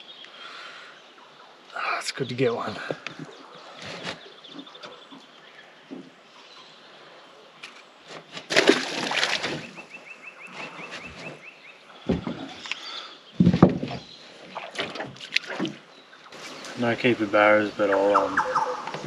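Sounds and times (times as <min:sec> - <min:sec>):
splash of fish released: 0:08.5 - 0:09.7.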